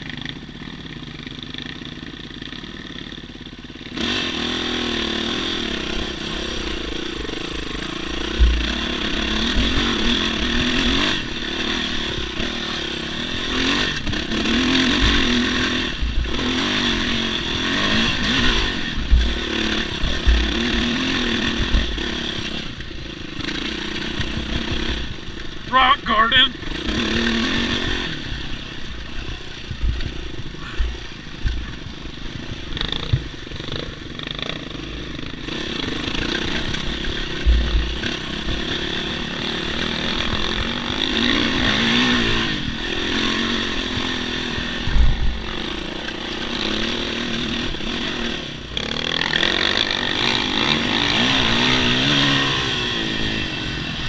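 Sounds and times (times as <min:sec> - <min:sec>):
dirt bike engine revving: 0:01.6 - 0:54.0
low thumps: 0:08.4 - 0:09.0.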